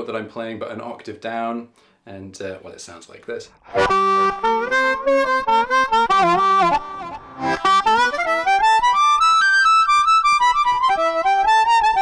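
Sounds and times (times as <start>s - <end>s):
amplified bluesy harmonica: 3.6s - 12.0s.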